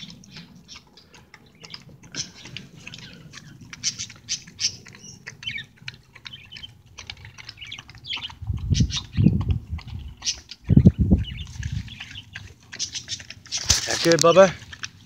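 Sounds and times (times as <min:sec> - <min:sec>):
dogs chewing and licking: 0:00.0 - 0:15.0.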